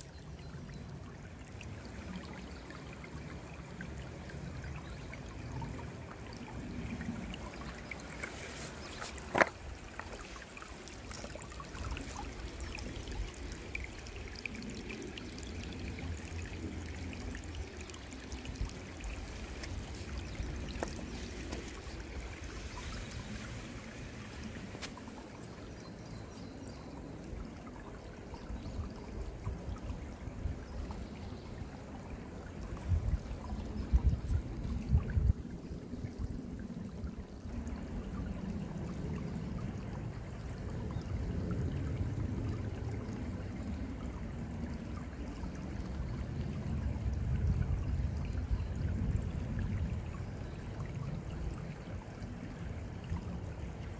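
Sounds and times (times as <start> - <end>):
stream trickling over stones: 0.0 - 53.9.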